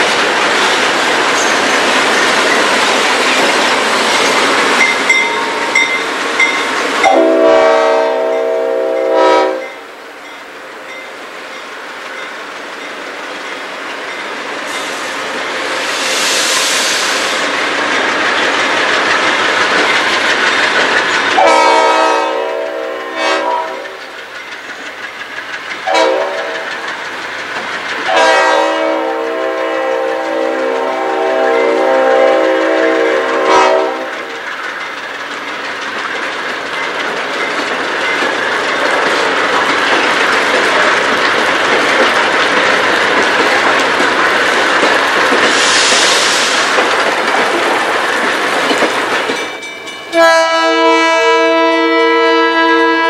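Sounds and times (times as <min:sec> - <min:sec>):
wheels clacking over rails: 0:00.0 - 0:07.4, 0:17.3 - 0:50.3
freight train rumbling past: 0:00.0 - 0:53.0
locomotive air horn blasts: 0:07.0 - 0:09.8, 0:21.4 - 0:23.9, 0:25.9 - 0:26.6, 0:28.1 - 0:34.2, 0:50.1 - 0:53.0.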